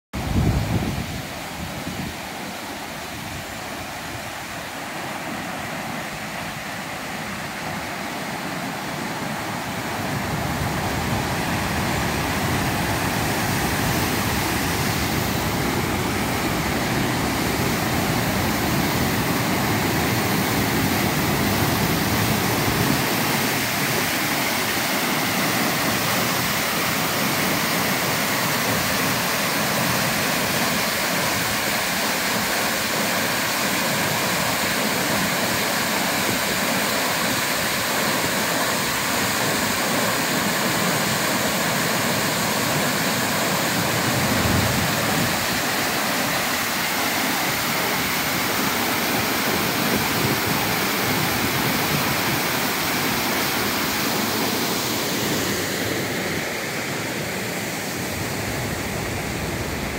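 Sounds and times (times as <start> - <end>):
waterfall rushing over rocks: 0.2 - 59.9.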